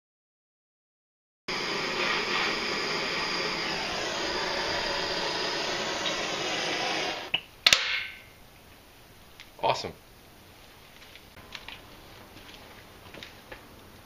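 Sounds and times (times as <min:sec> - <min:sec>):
propane torch hissing: 0:01.5 - 0:07.4
torch shutoff click: 0:01.5 - 0:07.4.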